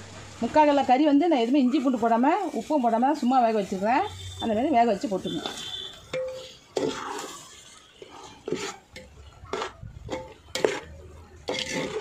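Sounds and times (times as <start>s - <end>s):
metal spoon scraping a pot: 5.4s - 12.0s.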